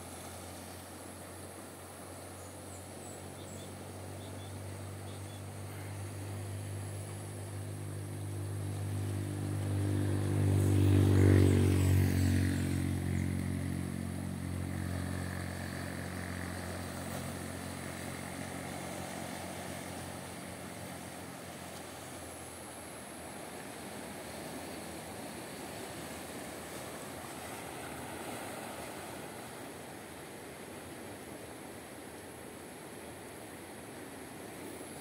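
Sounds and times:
motor engine passing by: 0:04.9 - 0:22.3, 0:23.8 - 0:29.5.

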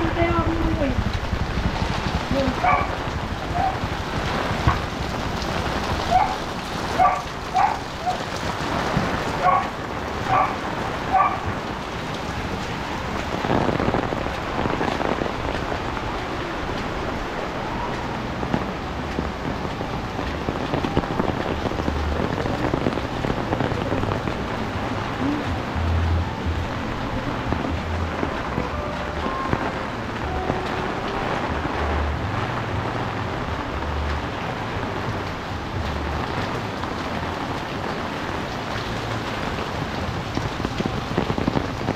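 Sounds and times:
heavy rain on an umbrella: 0:00.0 - 0:41.9
dog barking: 0:02.6 - 0:03.8, 0:06.1 - 0:08.2, 0:09.4 - 0:11.5.

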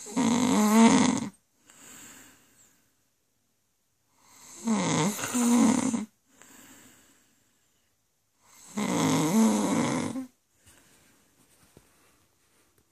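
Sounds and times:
woman snoring: 0:00.0 - 0:01.4, 0:04.2 - 0:06.1, 0:08.4 - 0:10.4
quiet breath: 0:01.5 - 0:03.2, 0:06.2 - 0:08.8, 0:10.2 - 0:12.9.

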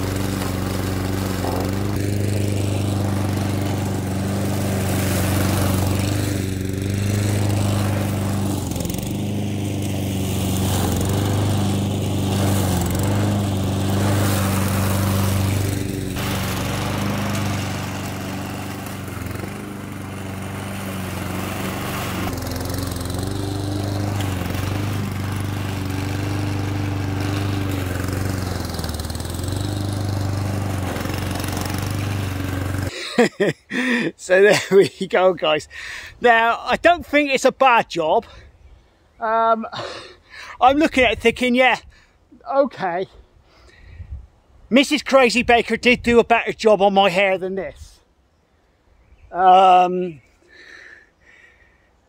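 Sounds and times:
lawnmower cutting long grass: 0:00.0 - 0:33.2.

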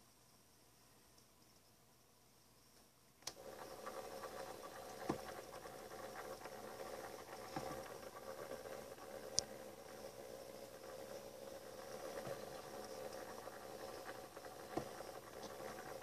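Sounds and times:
faint scratching: 0:03.3 - 0:16.0
turntable motor whirring: 0:03.3 - 0:16.0.

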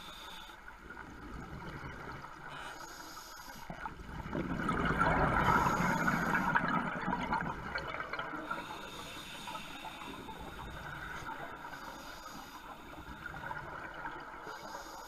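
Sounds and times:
underwater regulator bubbling: 0:04.1 - 0:09.0.

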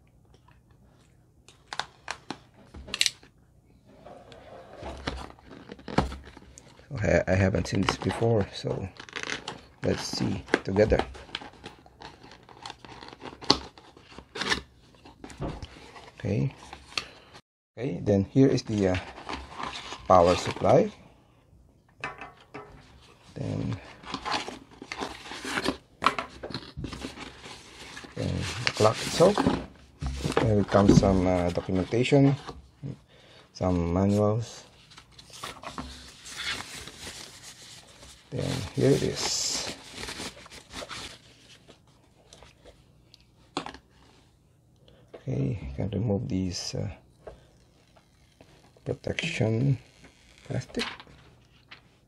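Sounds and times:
cardboard rubbing and rustling: 0:26.4 - 0:32.6, 0:34.1 - 0:41.8.

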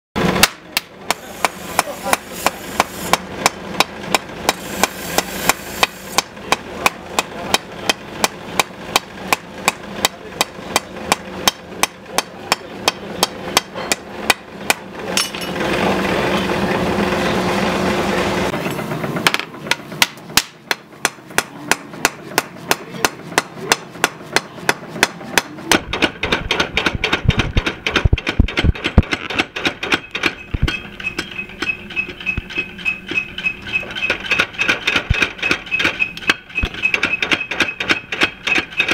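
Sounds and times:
hammer ringing on anvil: 0:11.5 - 0:14.0, 0:15.2 - 0:15.6.

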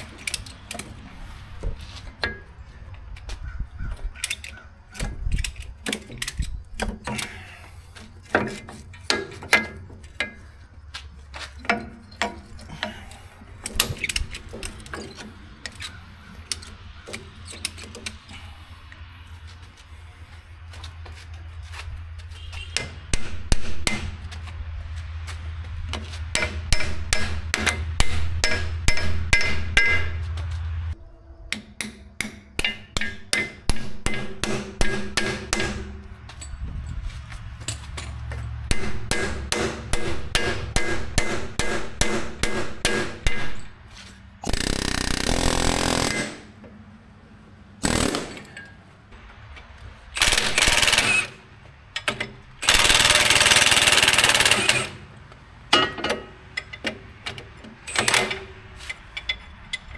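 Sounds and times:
hammer striking steel: 0:26.3 - 0:30.2, 0:31.5 - 0:36.1, 0:38.7 - 0:43.7.

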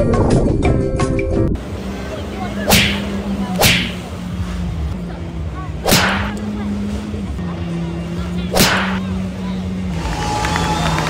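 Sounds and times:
jet ski engine droning: 0:01.6 - 0:11.0
loud whooshing swishes: 0:02.6 - 0:04.7, 0:05.8 - 0:06.4, 0:08.5 - 0:09.0.

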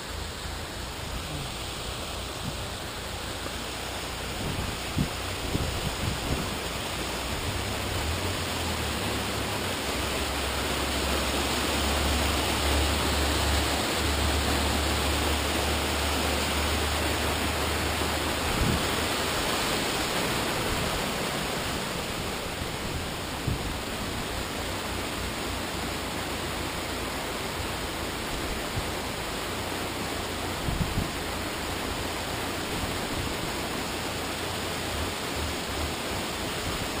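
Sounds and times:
small waterfall splashing: 0:00.0 - 0:37.0.

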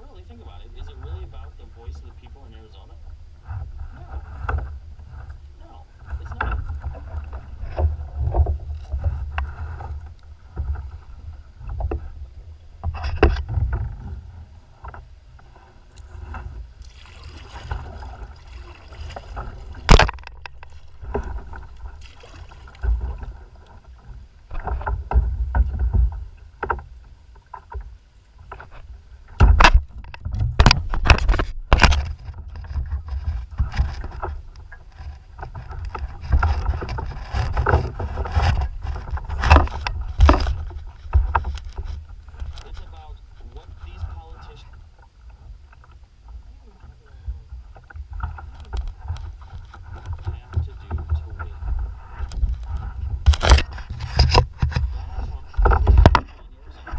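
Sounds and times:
wind rumbling on microphone: 0:00.0 - 0:56.9
water slapping against hull: 0:00.2 - 0:56.9
knocks against boat: 0:19.1 - 0:22.1, 0:29.3 - 0:34.4.

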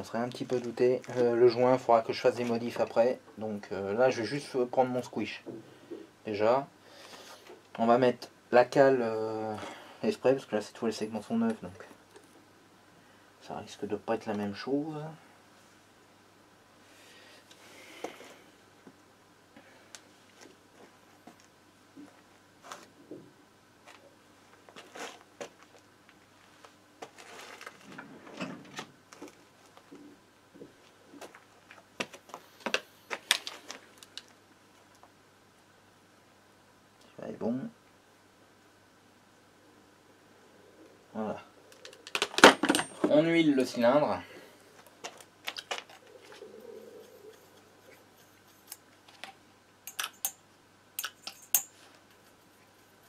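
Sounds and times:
small parts clicking and knocking: 0:48.5 - 0:50.4, 0:51.0 - 0:52.4.

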